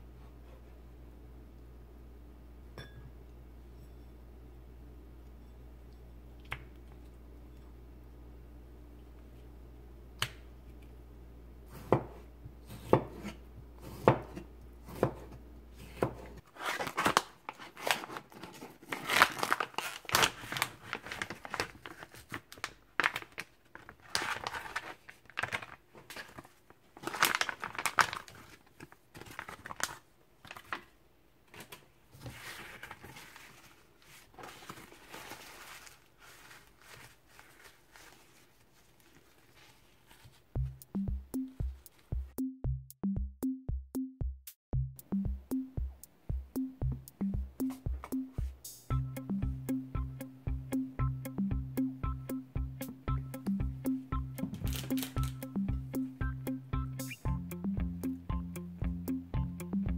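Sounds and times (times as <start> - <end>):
knife cutting tomato in bowl: 11.7 - 16.4
paper towel rustling: 16.4 - 30.9, 31.6 - 40.6
plastic packaging crinkling tearing: 16.4 - 30.9, 32.3 - 40.4, 54.7 - 55.4.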